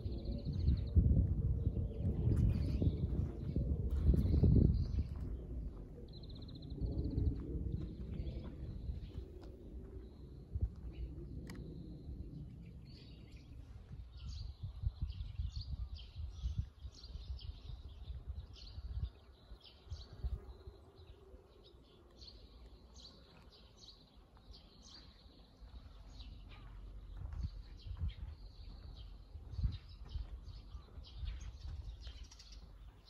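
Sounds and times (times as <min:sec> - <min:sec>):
low rumble: 0:00.0 - 0:16.7
small birds chirping: 0:01.8 - 0:33.0.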